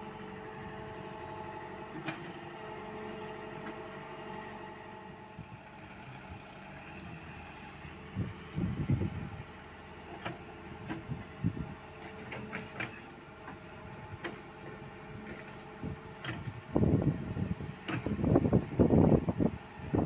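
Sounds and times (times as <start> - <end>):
diesel truck engine running: 0.0 - 20.0
wind buffeting microphone: 8.1 - 9.6, 10.8 - 11.8, 15.8 - 20.0.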